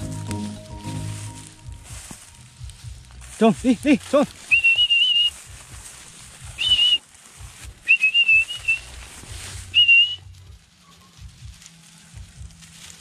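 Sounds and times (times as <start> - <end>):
man whistling: 4.5 - 5.4, 6.6 - 7.0, 7.8 - 8.9, 9.7 - 10.3.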